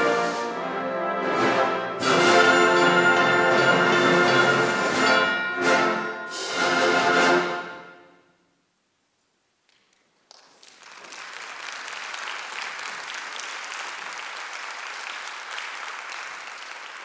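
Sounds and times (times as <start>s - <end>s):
audience applause: 10.3s - 17.0s.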